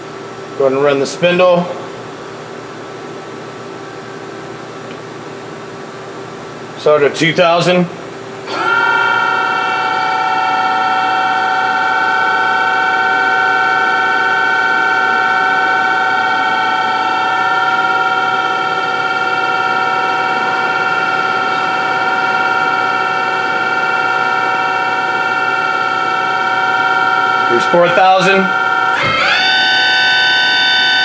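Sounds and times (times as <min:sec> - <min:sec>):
machine spindle whining: 0:08.5 - 0:31.0.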